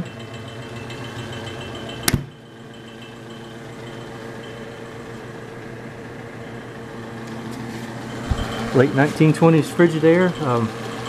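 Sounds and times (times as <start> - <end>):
compressor humming: 0.0 - 11.0
refrigerator door shutting: 2.0 - 2.3.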